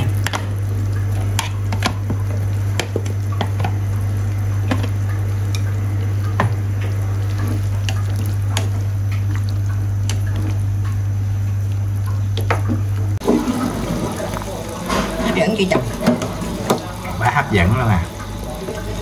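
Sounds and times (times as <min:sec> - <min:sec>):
broth bubbling and popping: 0:00.0 - 0:19.0
steady low hum: 0:00.0 - 0:19.0.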